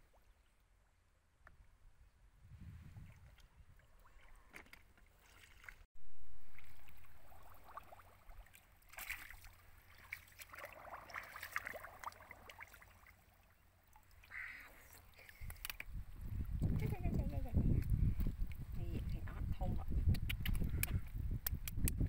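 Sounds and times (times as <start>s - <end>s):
muddy water splashing: 3.0s - 19.2s.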